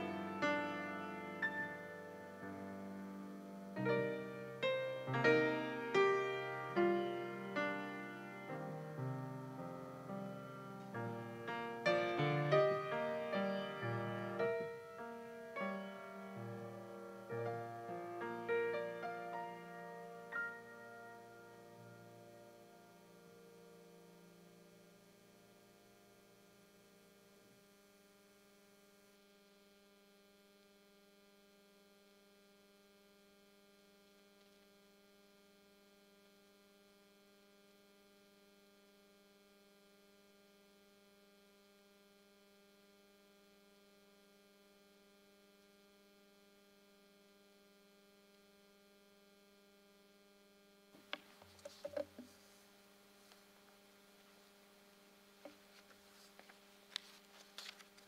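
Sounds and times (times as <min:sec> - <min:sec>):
electrical mains hum: 0:00.0 - 0:58.0
faint clicks and knocks: 0:51.0 - 0:52.4.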